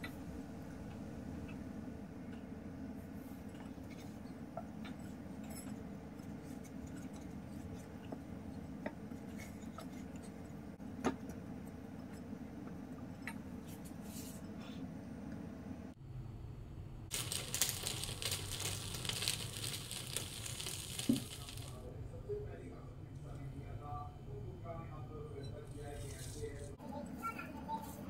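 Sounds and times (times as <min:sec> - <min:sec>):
hand kneading dough: 0:17.1 - 0:21.8
steady low hum: 0:21.2 - 0:26.8.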